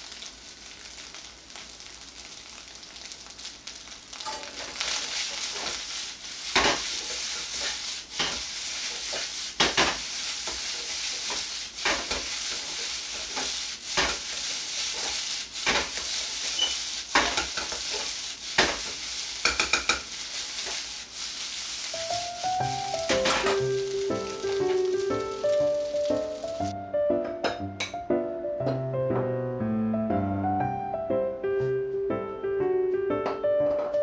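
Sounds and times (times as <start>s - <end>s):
rice sizzling in a wok: 0.0s - 26.8s
metal ladle scraping pan: 4.3s - 26.2s.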